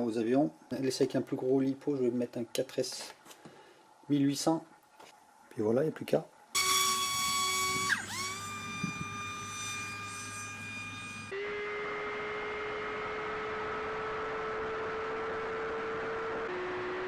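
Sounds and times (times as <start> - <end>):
electric motor whining: 6.6 - 17.0.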